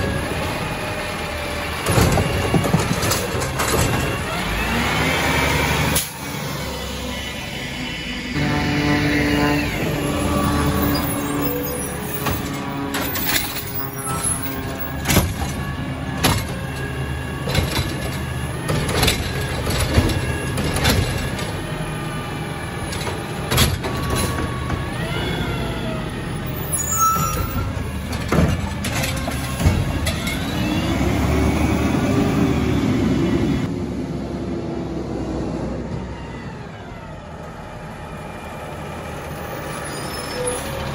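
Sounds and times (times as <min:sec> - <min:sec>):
cart and arm clanking: 0:00.0 - 0:04.9, 0:09.8 - 0:31.2
garbage truck engine running: 0:00.0 - 0:40.9.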